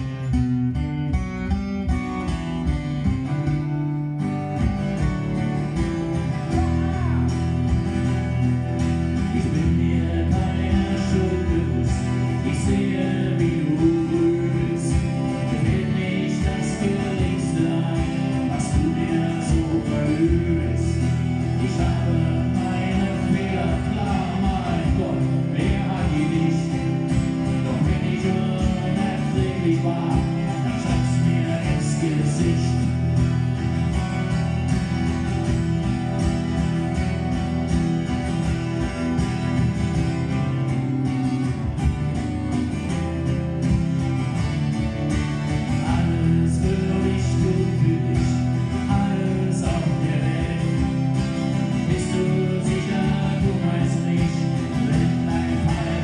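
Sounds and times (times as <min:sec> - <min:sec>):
acoustic guitars playing: 0:00.0 - 0:56.0
man singing: 0:08.2 - 0:33.2, 0:45.6 - 0:56.0.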